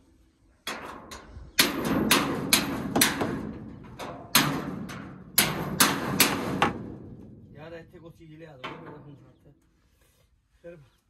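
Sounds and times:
hammer striking metal: 0:01.6 - 0:03.6, 0:04.3 - 0:06.9.

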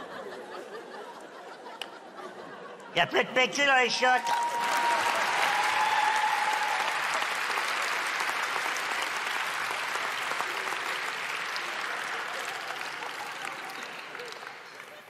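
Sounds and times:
audience applauding: 0:03.5 - 0:15.0.

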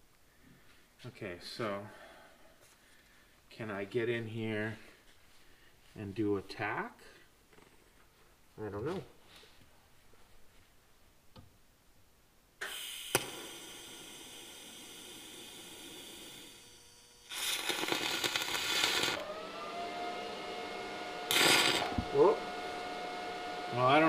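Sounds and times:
welding arc crackle: 0:12.6 - 0:19.2, 0:21.3 - 0:22.0
machine hum: 0:13.2 - 0:24.0.

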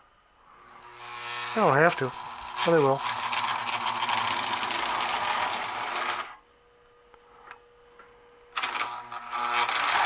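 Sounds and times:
faint steady hum: 0:00.0 - 0:10.0
toy electric train whirring: 0:00.8 - 0:06.4, 0:08.6 - 0:10.0.

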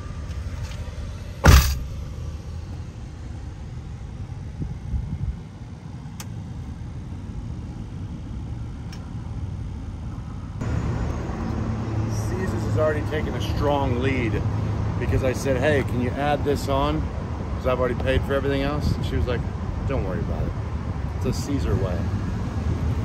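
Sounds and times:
low vehicle rumble: 0:00.0 - 0:23.0
car door shutting: 0:01.4 - 0:02.0.

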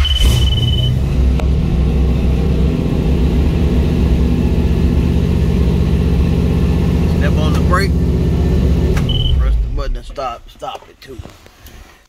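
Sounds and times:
short high beep: 0:00.0 - 0:01.0, 0:09.1 - 0:09.5
car engine idling: 0:00.0 - 0:11.0.

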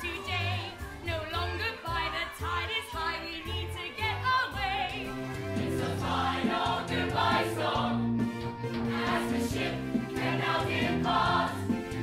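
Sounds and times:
voices singing with vibrato: 0:00.0 - 0:08.2, 0:08.8 - 0:12.0
band with repeating bass line: 0:05.1 - 0:12.0.

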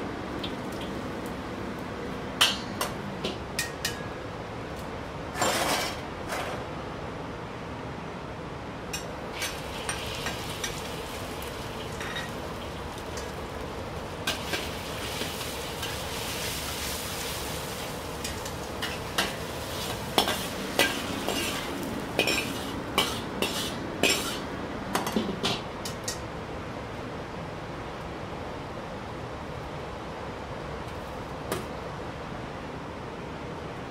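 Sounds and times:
meat sizzling in a wok: 0:09.3 - 0:24.5
metal spatula clanking on wok: 0:20.2 - 0:24.4.

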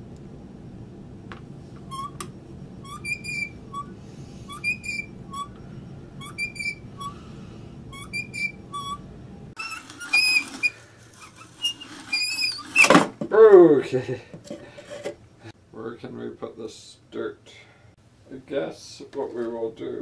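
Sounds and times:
drill squeaking: 0:02.8 - 0:05.6, 0:06.2 - 0:07.2, 0:07.9 - 0:09.0, 0:09.6 - 0:13.0
hand drill grinding into wood: 0:09.6 - 0:13.1.

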